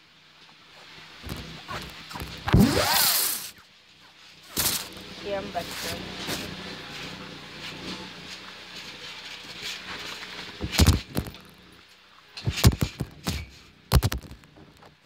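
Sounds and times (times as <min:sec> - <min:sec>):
low steady background noise: 0:00.0 - 0:15.0
loud thumps and knocks: 0:10.6 - 0:11.4, 0:12.4 - 0:14.4.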